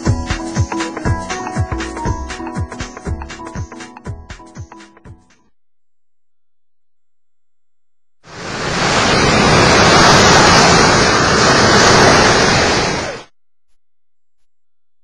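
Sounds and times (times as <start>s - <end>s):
loud rushing noise: 8.3s - 13.3s.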